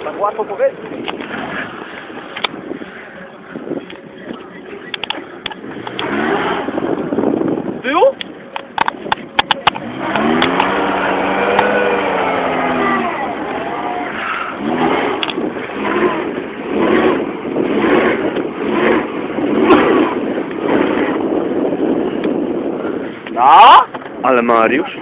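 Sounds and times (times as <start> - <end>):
car engine revving: 4.9 - 7.7, 9.0 - 23.2.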